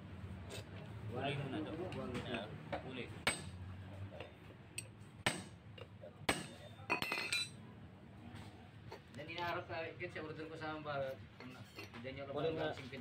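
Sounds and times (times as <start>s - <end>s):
tools tapping on metal: 2.7s - 3.6s, 4.2s - 7.6s.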